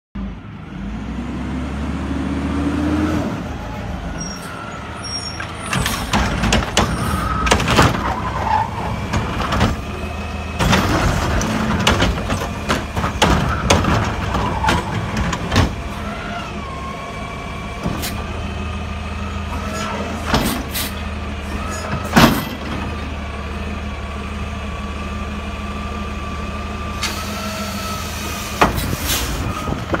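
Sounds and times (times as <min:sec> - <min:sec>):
hydraulics whining: 0:02.5 - 0:30.0
garbage truck engine running: 0:03.4 - 0:30.0
bins and metal clanking: 0:10.6 - 0:15.8
air brakes hissing: 0:20.4 - 0:21.0, 0:27.0 - 0:29.6.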